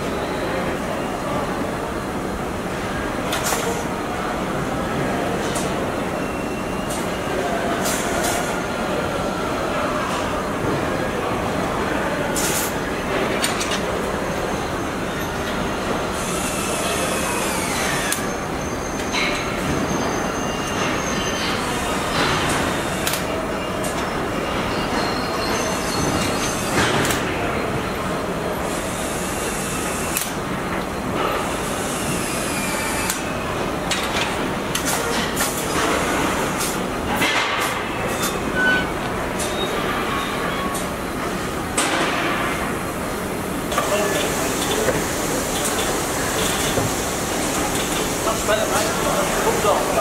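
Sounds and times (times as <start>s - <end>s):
industrial machinery din: 20.8s - 50.0s.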